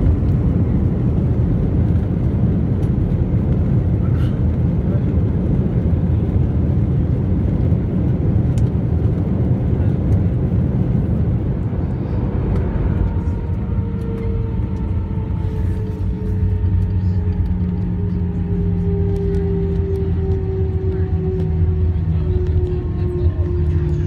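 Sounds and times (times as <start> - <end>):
rumble of wheels and airflow: 0.0 - 24.0
steady humming tones: 9.2 - 24.0.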